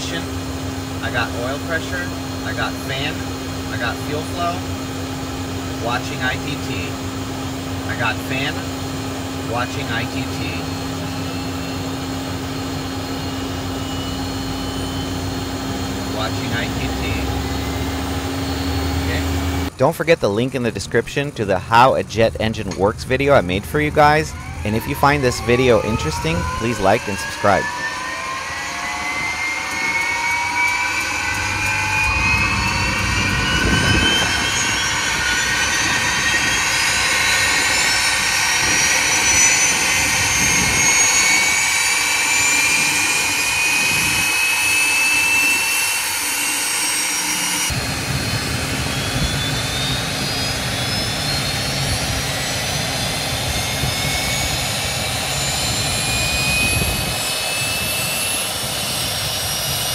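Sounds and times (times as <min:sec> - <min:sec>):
deep engine rumble: 0:00.0 - 0:44.9
jet engine whine spooling up: 0:00.0 - 0:59.9.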